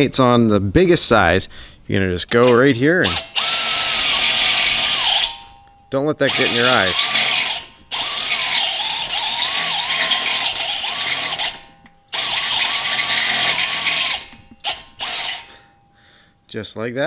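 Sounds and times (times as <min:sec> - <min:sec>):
power drill cutting metal: 0:02.3 - 0:05.5, 0:06.2 - 0:15.6.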